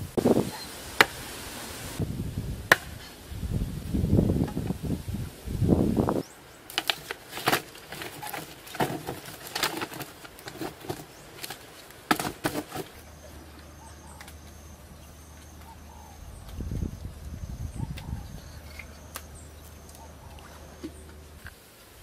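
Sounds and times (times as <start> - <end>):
wooden poles pounding mud wall: 6.8 - 13.0
faint high chirp: 13.0 - 21.1.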